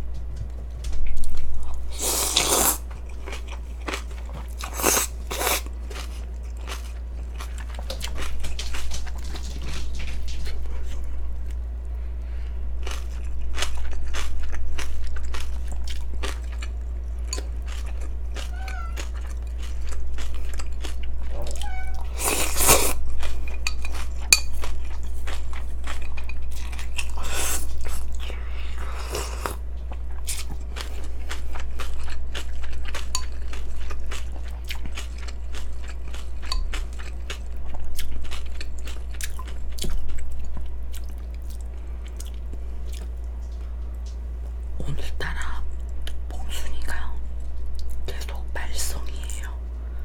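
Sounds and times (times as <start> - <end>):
crunching and chewing: 0.0 - 45.0
steady low hum: 0.0 - 50.0
slurping noodles: 1.9 - 2.8.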